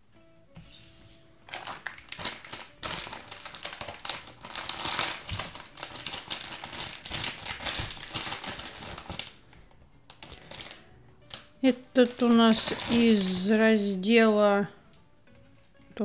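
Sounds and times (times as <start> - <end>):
foil packet crinkling: 1.4 - 9.4, 10.1 - 14.1.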